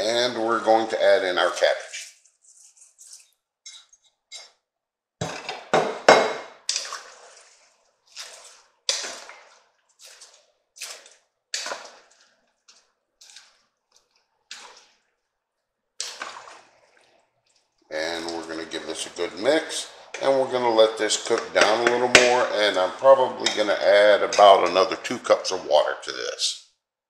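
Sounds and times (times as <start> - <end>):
wooden spoon stirring pot: 0.0 - 4.6, 5.3 - 15.4, 16.0 - 25.6
cabbage splashing into soup: 6.5 - 15.0, 16.0 - 17.6.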